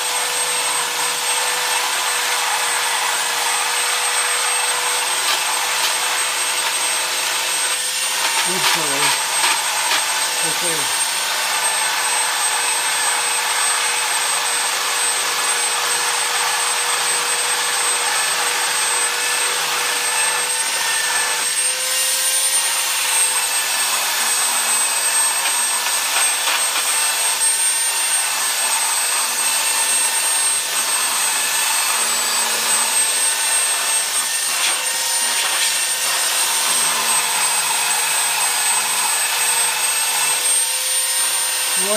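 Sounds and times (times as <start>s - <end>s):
belt sander sanding wood: 0.0s - 41.9s.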